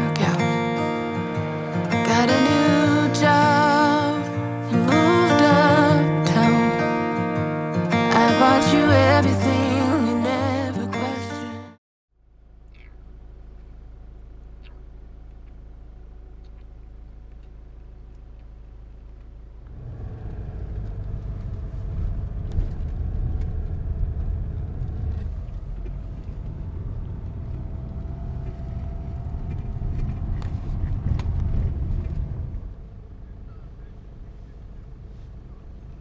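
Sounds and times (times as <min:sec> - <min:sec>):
low cabin hum: 0:00.0 - 0:36.0
car engine and tyre rumble: 0:12.2 - 0:36.0.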